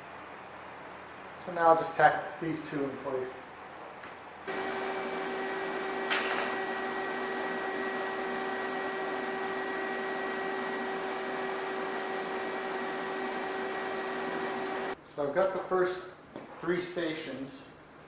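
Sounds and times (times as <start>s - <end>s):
electric welder humming: 4.5s - 15.0s.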